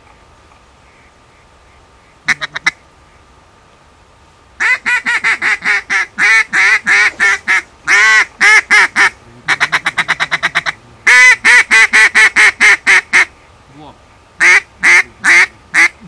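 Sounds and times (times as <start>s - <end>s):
duck call quacks and chatter: 2.2s - 2.8s, 4.6s - 13.3s, 14.4s - 16.0s.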